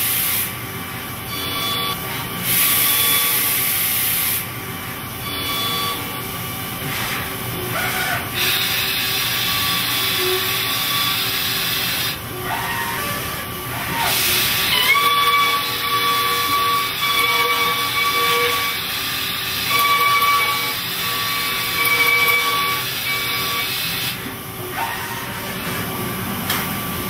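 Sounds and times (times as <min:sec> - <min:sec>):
milling cutter whine: 0:08.2 - 0:25.7.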